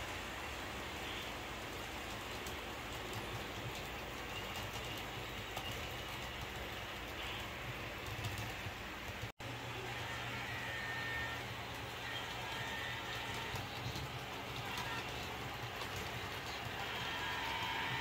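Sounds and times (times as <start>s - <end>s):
train wheels clicking on track: 1.7s - 9.3s, 11.6s - 18.0s
model train humming: 9.4s - 18.0s.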